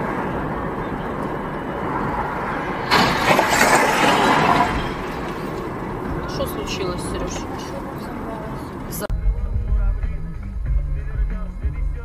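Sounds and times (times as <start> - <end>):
car road noise: 0.0 - 12.0
loud crash: 2.8 - 5.7.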